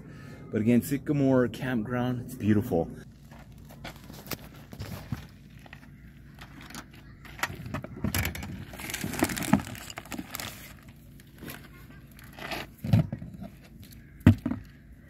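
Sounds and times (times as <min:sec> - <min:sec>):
rustling: 0:08.5 - 0:14.2.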